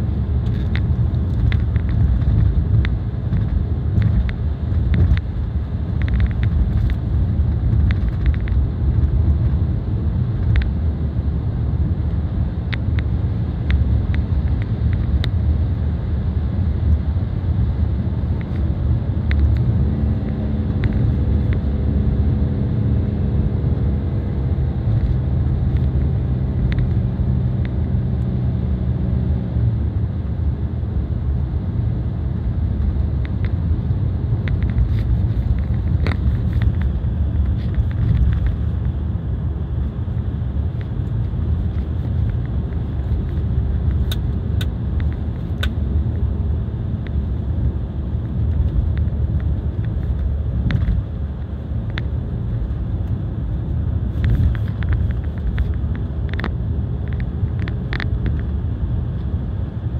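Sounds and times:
car engine hum: 0.0 - 59.9
road and tyre rumble: 0.0 - 59.9
small clicks and rattles: 0.4 - 7.0, 7.7 - 9.4, 34.4 - 38.7, 54.1 - 58.5.

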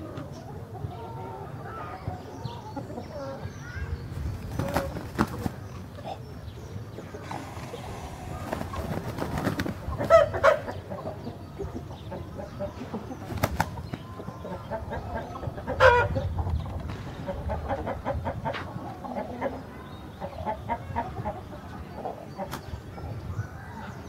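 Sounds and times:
rooster flapping wings: 4.4 - 5.6, 7.3 - 10.3, 13.3 - 13.8
chicken clucking: 4.4 - 23.2.

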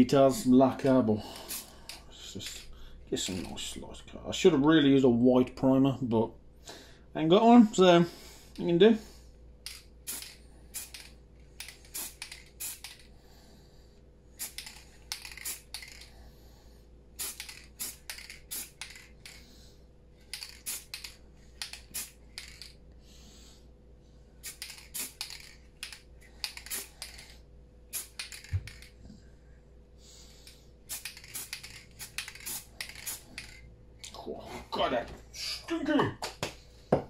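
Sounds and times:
spray paint can hissing: 9.7 - 13.0, 14.4 - 16.1, 17.2 - 19.4, 20.3 - 22.7, 24.4 - 28.9, 30.9 - 33.6.

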